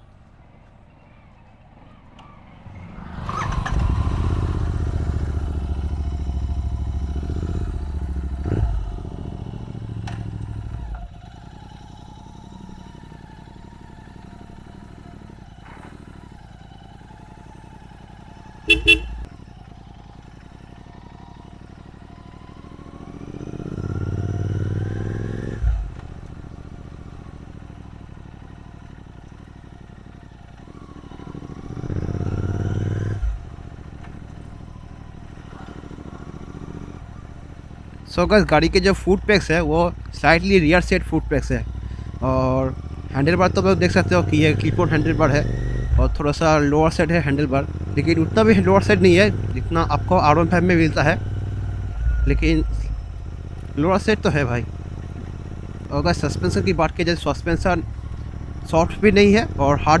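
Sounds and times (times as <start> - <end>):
motorcycle engine accelerating: 1.9 - 60.0
motorcycle horn toots: 18.6 - 19.3.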